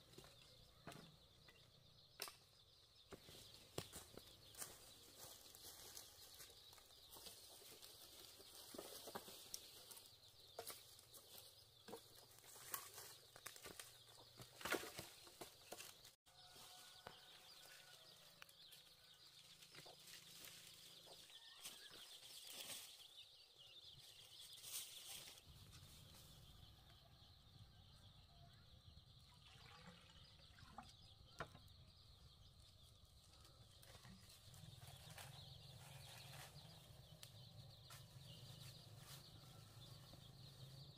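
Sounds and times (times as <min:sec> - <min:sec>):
bamboo sticks knocking and rustling: 0:07.1 - 0:16.2.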